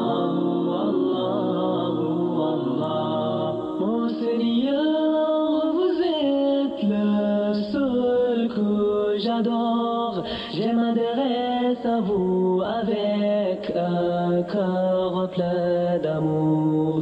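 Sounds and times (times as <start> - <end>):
voices singing devotional song: 0.0 - 17.0.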